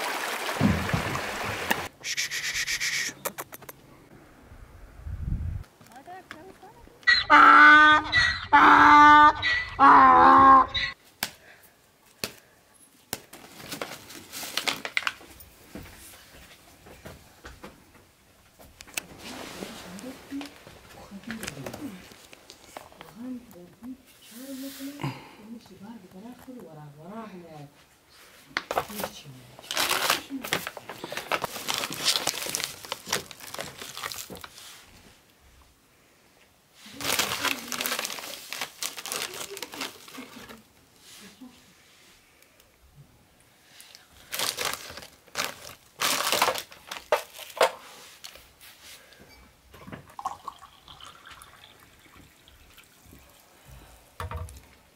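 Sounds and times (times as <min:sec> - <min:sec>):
sharp clicks: 0:02.8 - 0:03.8
foil packet crinkling: 0:13.3 - 0:15.3, 0:28.7 - 0:34.6, 0:36.9 - 0:40.6, 0:43.9 - 0:48.4.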